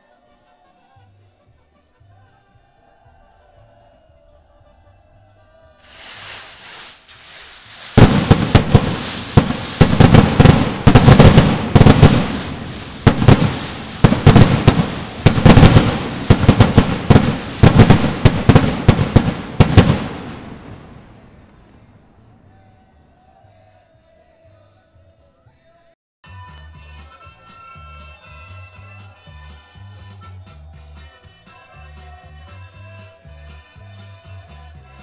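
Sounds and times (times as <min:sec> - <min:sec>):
firecracker bangs: 0:05.8 - 0:22.4.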